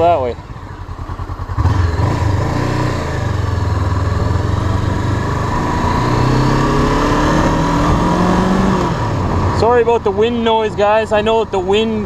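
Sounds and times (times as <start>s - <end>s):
motorcycle engine accelerating: 0.0s - 10.5s
wind buffeting microphone: 1.4s - 10.1s.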